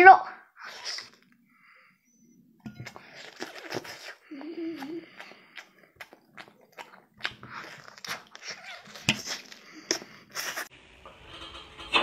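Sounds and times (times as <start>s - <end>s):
chewing and lip-smacking: 2.7s - 10.7s.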